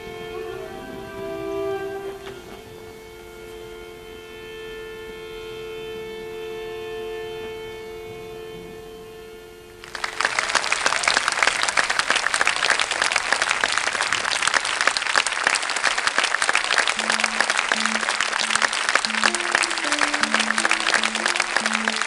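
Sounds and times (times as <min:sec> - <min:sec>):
audience applause: 0:09.8 - 0:22.0
held musical note: 0:13.0 - 0:22.0
slow low musical notes: 0:16.7 - 0:22.0.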